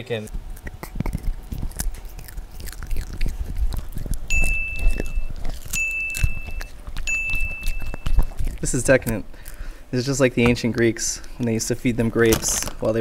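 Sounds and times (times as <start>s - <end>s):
dog chewing and licking: 0.0s - 13.0s
high electronic beeps: 4.3s - 8.2s.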